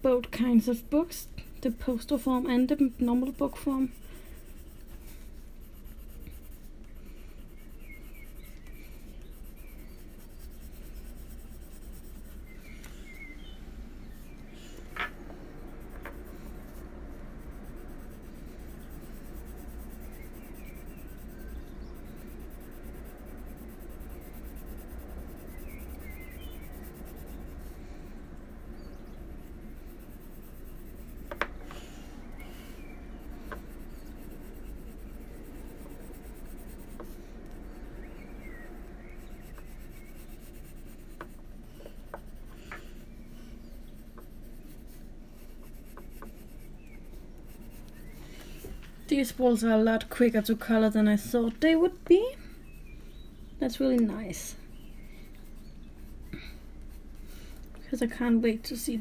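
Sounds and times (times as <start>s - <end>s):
pencil scratching on paper: 0.1s - 12.8s, 15.4s - 48.4s.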